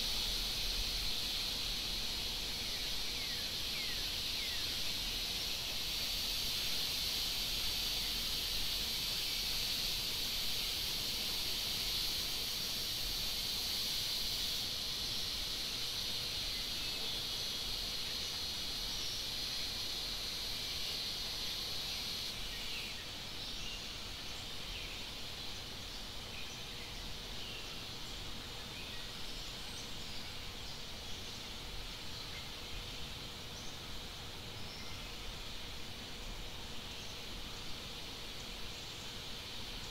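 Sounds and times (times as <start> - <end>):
high-pitched insect buzz: 0.0 - 23.1
low background hiss: 0.0 - 39.9.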